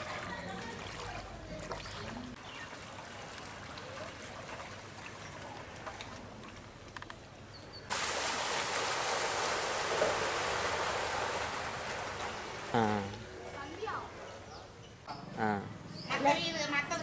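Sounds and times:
running water rushing: 0:00.0 - 0:06.7, 0:07.9 - 0:14.2
faint outdoor hiss: 0:00.0 - 0:17.0.

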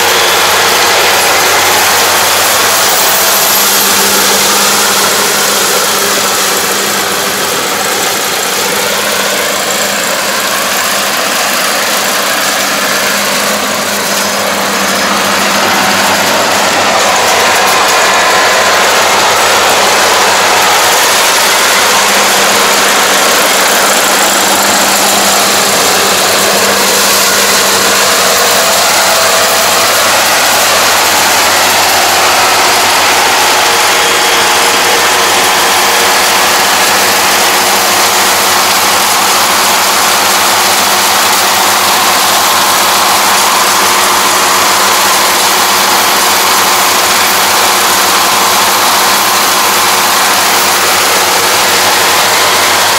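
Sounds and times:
combine harvester running: 0:00.0 - 0:52.9.

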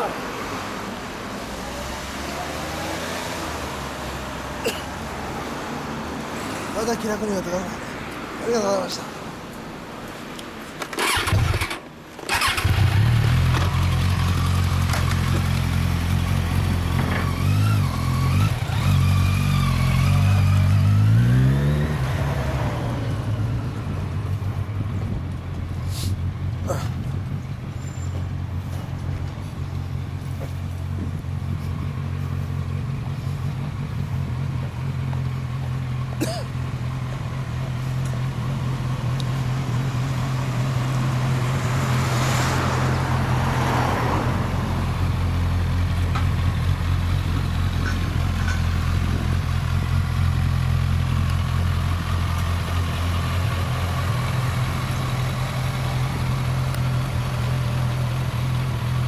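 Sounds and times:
motorcycle engine at low revs: 0:10.8 - 0:41.8, 0:44.4 - 0:59.0.

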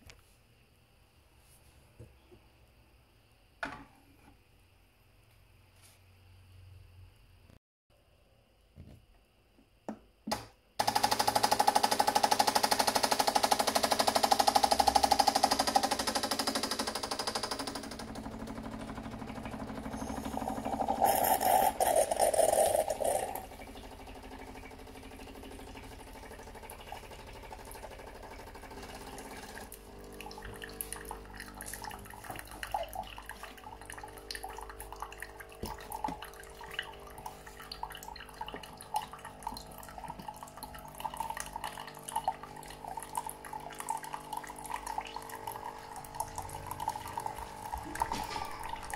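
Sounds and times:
machine humming: 0:10.8 - 0:30.2
pump buzzing: 0:10.8 - 0:48.9
hot water splashing into mug: 0:19.6 - 0:27.8.

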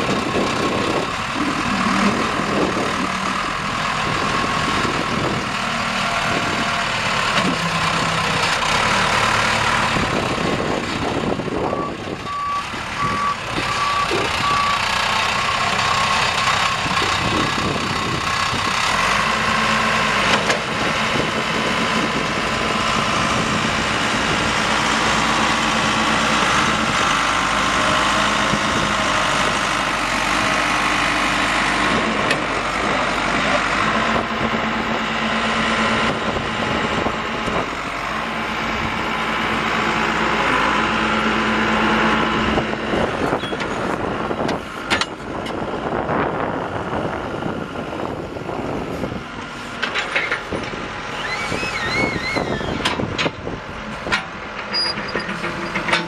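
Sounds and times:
diesel engine running: 0:00.0 - 0:56.0
reverse alarm beeps: 0:11.7 - 0:14.8.

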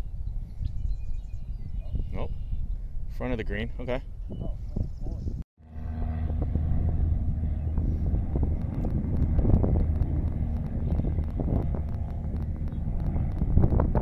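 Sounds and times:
wind buffeting microphone: 0:00.0 - 0:14.0
golf cart motor hum: 0:05.6 - 0:14.0.

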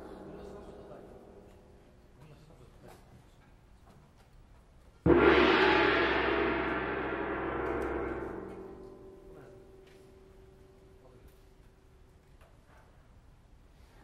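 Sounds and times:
metal percussion strike ringing: 0:00.0 - 0:02.1, 0:05.1 - 0:11.2.

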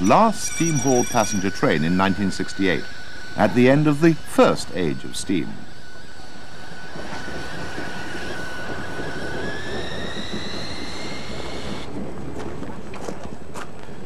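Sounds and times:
thin high squeal: 0:00.0 - 0:04.0
steam locomotive rumbling on rails: 0:00.0 - 0:13.5.

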